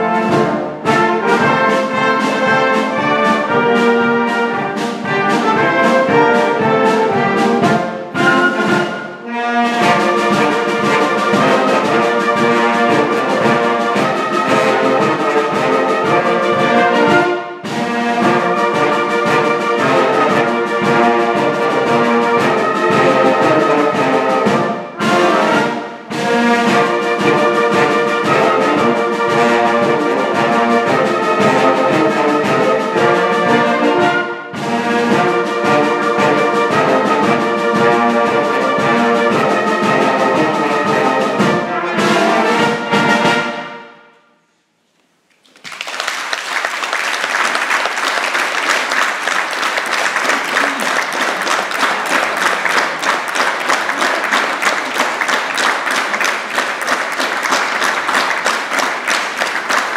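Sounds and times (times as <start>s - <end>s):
wind band playing: 0.0s - 44.1s, 45.9s - 59.9s
audience applause: 45.3s - 59.9s.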